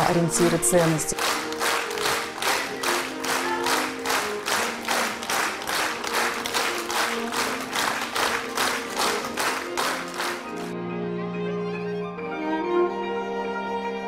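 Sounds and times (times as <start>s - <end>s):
audience clapping in unison: 0.0s - 10.7s.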